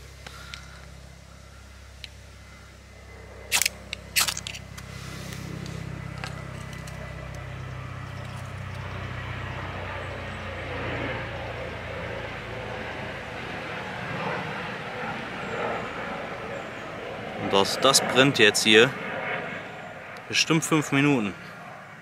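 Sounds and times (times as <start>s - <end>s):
steady low drone: 0.0s - 22.0s
tinder burning softly: 3.8s - 7.5s.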